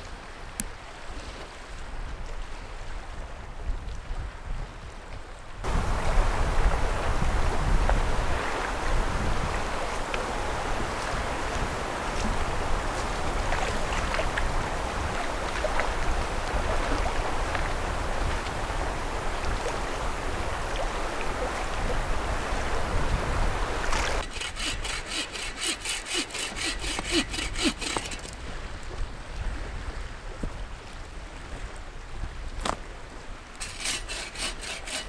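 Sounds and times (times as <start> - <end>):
lapping lake water: 0.0 - 35.0
wind: 0.0 - 35.0
hand saw cutting wood: 24.2 - 28.4, 33.6 - 35.0
rubbing and handling wood: 24.2 - 28.4, 33.6 - 35.0.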